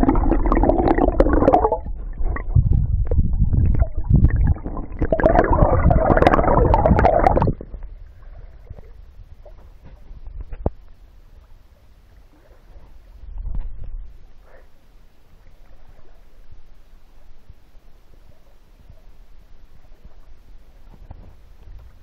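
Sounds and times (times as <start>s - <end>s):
underwater clicks and knocks: 0.0s - 7.9s, 9.5s - 11.0s
muffled underwater river rumbling: 0.0s - 22.0s.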